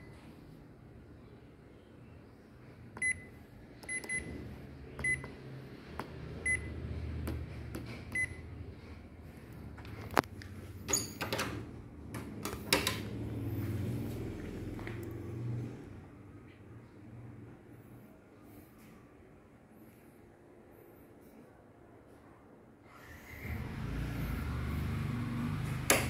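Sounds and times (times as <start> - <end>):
control panel beeping: 3.0 - 4.4, 5.0 - 5.4, 8.1 - 8.4.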